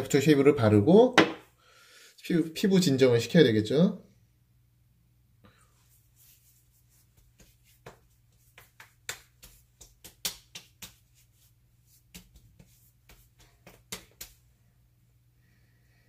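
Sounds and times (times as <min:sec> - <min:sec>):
palms slapping skin: 0:06.2 - 0:14.4.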